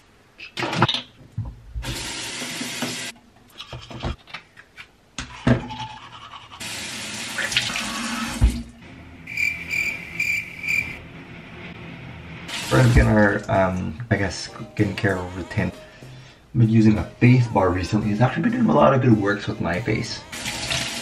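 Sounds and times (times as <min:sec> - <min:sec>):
sink tap running: 0:01.8 - 0:03.1, 0:06.6 - 0:08.6, 0:12.5 - 0:13.2, 0:20.3 - 0:21.0
teeth being brushed: 0:05.8 - 0:06.6.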